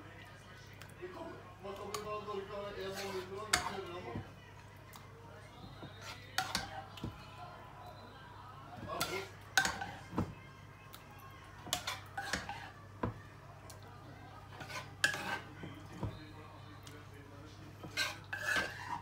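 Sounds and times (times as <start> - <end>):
spatula scraping pan and dish: 2.6 - 4.2, 5.8 - 6.7, 8.8 - 10.1, 11.6 - 12.8, 14.5 - 16.1, 17.7 - 19.0.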